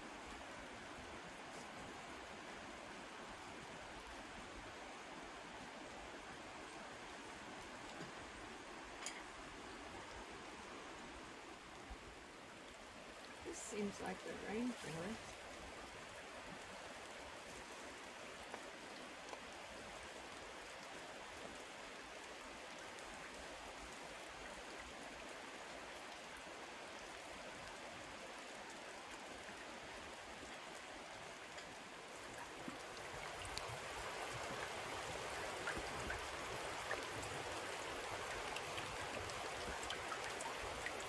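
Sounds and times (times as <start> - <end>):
light rain on undergrowth: 0.0 - 41.0.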